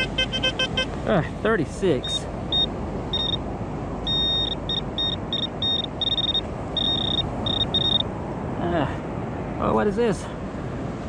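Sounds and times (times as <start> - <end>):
metal detector probe beeping: 0.0 - 1.0, 2.0 - 3.4, 4.1 - 8.0
rushing background noise: 0.0 - 11.0.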